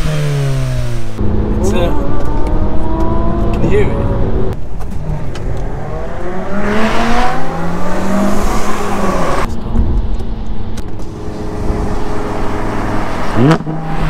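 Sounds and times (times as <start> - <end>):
car engine accelerating: 0.0 - 14.0.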